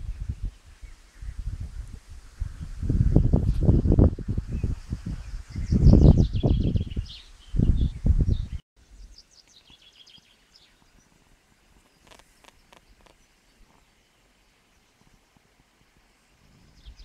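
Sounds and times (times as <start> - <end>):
wind buffeting microphone: 0.0 - 8.6, 16.3 - 17.0
songbirds chirping: 4.6 - 17.0.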